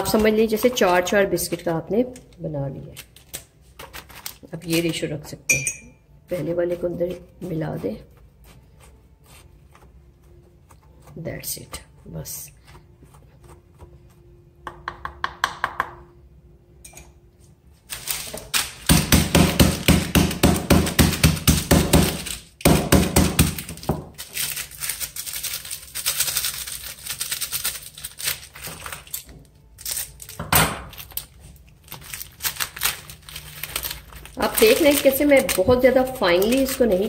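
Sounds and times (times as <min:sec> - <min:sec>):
biscuits crushed in packet: 0:03.0 - 0:05.0, 0:17.9 - 0:20.1, 0:20.7 - 0:37.0.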